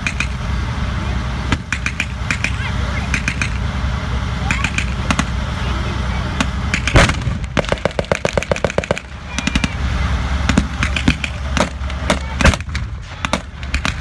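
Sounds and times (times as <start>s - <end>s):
low steady engine: 0.0s - 14.0s
machine gun firing: 1.6s - 3.6s, 6.7s - 9.8s, 10.5s - 14.0s.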